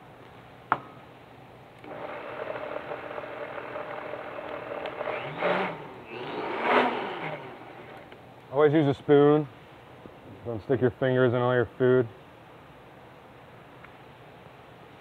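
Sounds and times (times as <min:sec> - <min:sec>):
blender motor whirring: 0:01.8 - 0:08.2.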